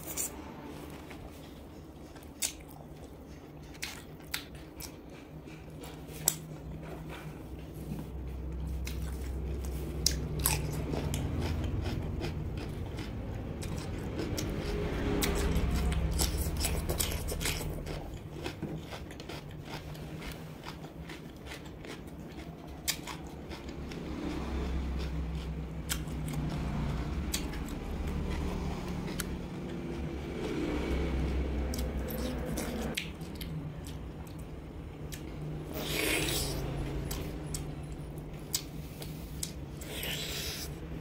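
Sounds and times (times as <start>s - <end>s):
low steady hum: 0.0s - 41.0s
cucumber crunching: 15.2s - 23.7s, 39.4s - 40.8s.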